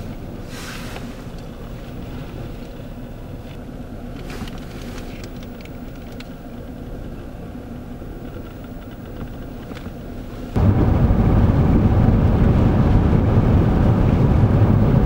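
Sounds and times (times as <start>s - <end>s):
wind rushing over microphone: 10.6s - 15.0s.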